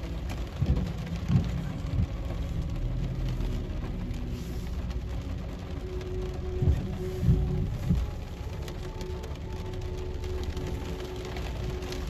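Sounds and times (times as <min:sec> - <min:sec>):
car cabin rumble: 0:00.0 - 0:04.1, 0:05.9 - 0:08.5
rain patter: 0:00.0 - 0:12.0.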